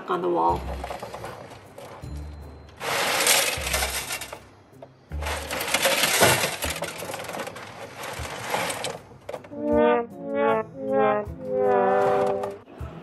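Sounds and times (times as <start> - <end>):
cat litter clattering over grate: 5.2 - 9.0.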